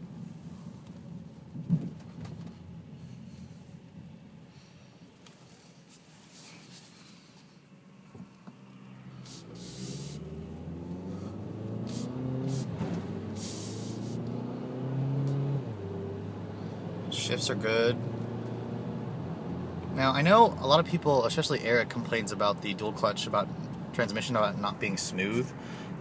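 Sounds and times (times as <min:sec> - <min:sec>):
car engine accelerating: 0:08.6 - 0:21.0
short bursts of hiss: 0:09.2 - 0:10.3, 0:11.9 - 0:12.7, 0:13.3 - 0:14.2.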